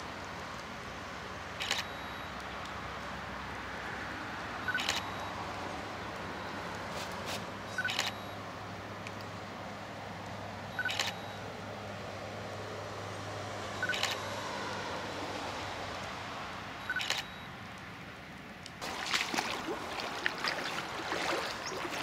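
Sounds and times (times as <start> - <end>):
camera shutter clicks: 1.6 - 1.9, 4.8 - 5.1, 7.8 - 8.2, 10.9 - 11.2, 13.9 - 14.2, 16.9 - 17.4
self-timer double beep: 1.6 - 2.4, 4.6 - 5.4, 7.8 - 8.4, 10.7 - 11.4, 13.8 - 14.1, 16.8 - 17.6.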